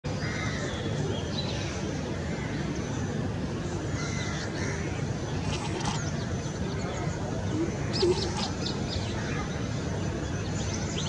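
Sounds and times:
small birds chirping: 5.1s - 11.0s.

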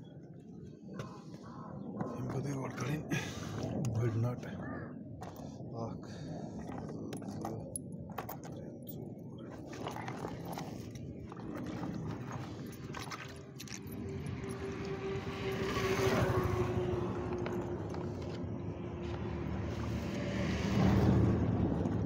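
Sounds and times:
engine hum: 13.8s - 22.0s.

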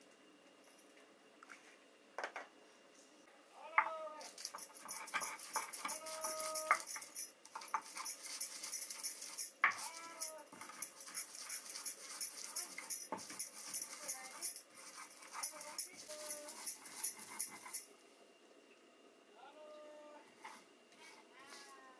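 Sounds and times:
stone grinding spices: 4.2s - 17.9s
animal whining: 5.6s - 7.1s, 9.8s - 10.6s.

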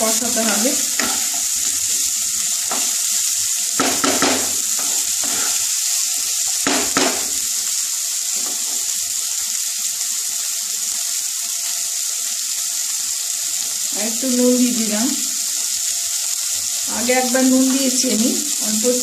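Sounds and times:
food sizzling in oil: 0.0s - 19.0s
wooden spatula scraping pan: 3.9s - 5.7s.

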